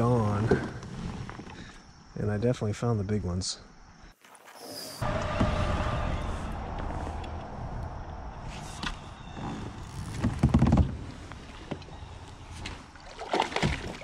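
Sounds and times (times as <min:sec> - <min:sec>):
small water splash: 0:11.4 - 0:14.0.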